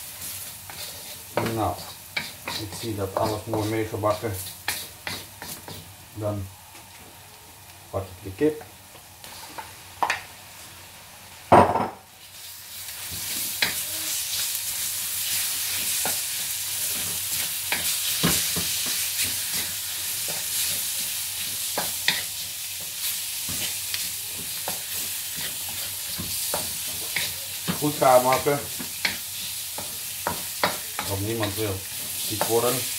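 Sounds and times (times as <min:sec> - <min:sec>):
wooden spatula scraping wok: 0:00.0 - 0:05.9, 0:15.2 - 0:32.9
chicken sizzling in hot oil: 0:00.0 - 0:06.4, 0:12.1 - 0:32.9.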